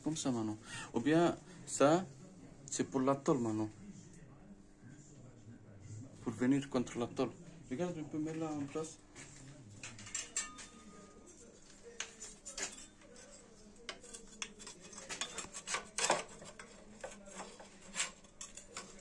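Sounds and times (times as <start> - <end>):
metal plate clinks and scraping: 9.8 - 11.4.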